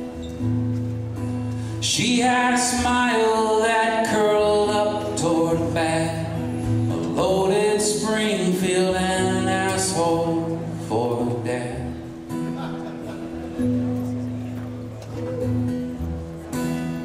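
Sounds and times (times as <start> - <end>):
acoustic guitar: 0.0 - 17.0
man singing: 1.8 - 12.2.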